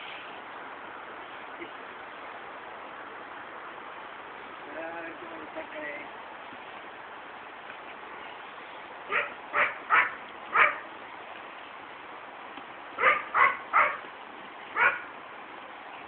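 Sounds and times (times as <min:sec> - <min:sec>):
dog barking: 0:09.1 - 0:10.8, 0:13.0 - 0:14.0, 0:14.8 - 0:15.1.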